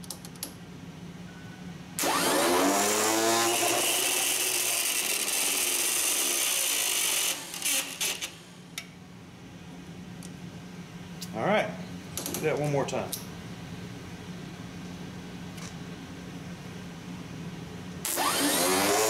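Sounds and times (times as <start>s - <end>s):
starter motor whining: 2.0s - 8.6s, 18.0s - 19.0s.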